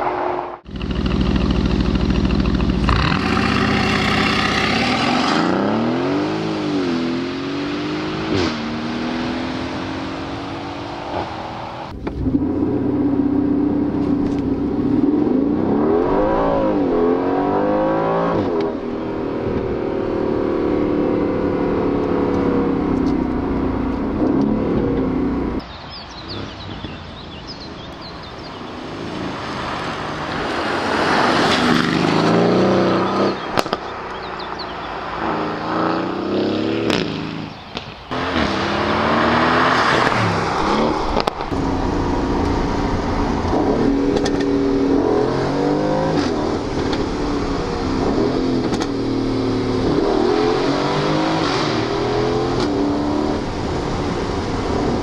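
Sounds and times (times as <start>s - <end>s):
car engine revving hard: 0.0s - 13.7s, 28.5s - 33.7s, 38.1s - 55.0s
exhaust cracks: 0.6s - 5.2s, 33.4s - 34.3s, 39.7s - 50.2s.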